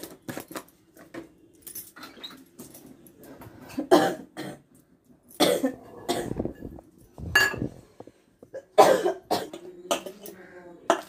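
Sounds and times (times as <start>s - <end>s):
person coughing: 3.8s - 4.7s, 5.4s - 6.5s, 8.5s - 10.1s.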